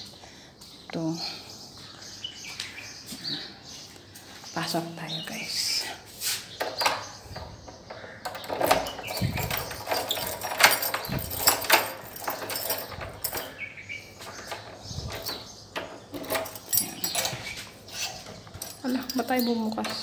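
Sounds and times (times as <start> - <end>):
door lock and handle rattling: 6.6 - 20.0.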